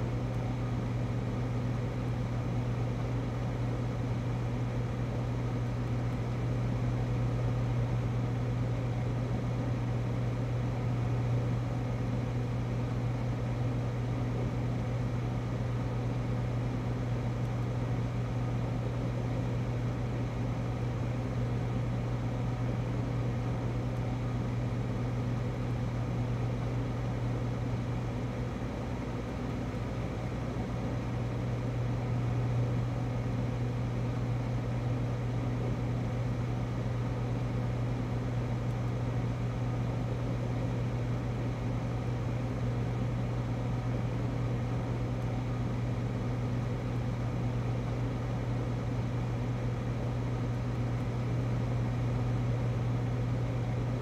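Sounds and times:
freezer humming: 0.0s - 54.0s.

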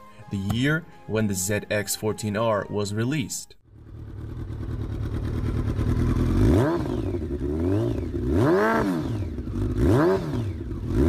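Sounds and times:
motorcycle engine idling and revving: 3.6s - 11.0s.

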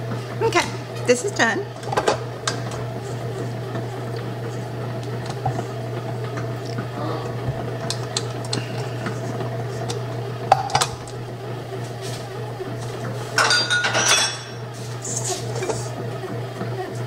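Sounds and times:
bread machine motor hum: 0.0s - 17.0s.

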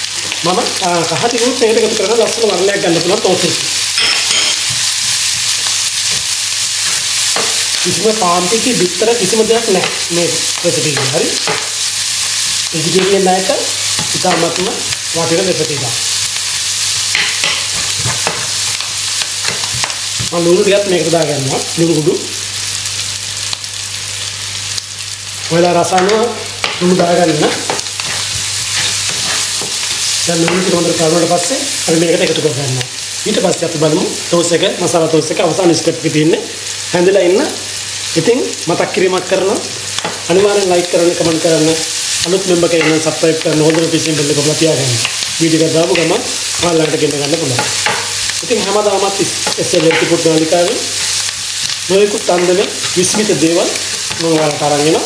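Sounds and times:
onion sizzling in oil: 0.0s - 55.0s
spatula scraping a pan: 27.5s - 30.2s.

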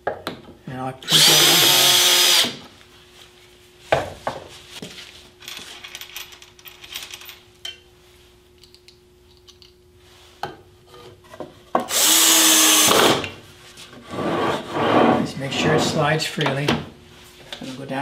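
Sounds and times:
faint steady hum: 0.0s - 18.0s
cordless drill whirring: 1.1s - 2.6s, 11.9s - 13.2s.

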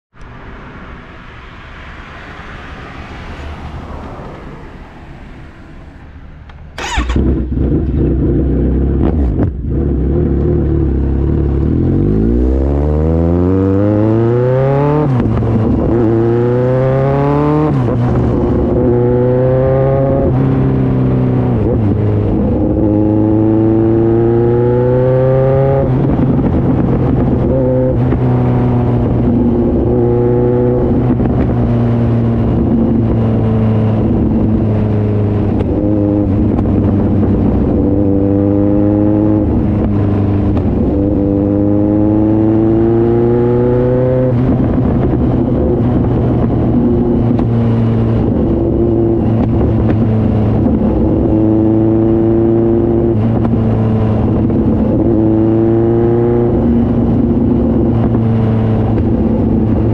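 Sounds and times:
motorcycle engine accelerating: 6.5s - 59.9s.

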